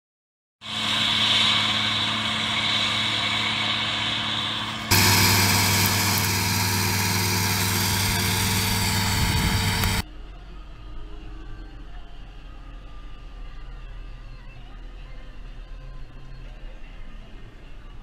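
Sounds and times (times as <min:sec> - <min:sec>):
tractor engine running: 0:00.6 - 0:10.0
forage harvester chopping: 0:04.9 - 0:10.0.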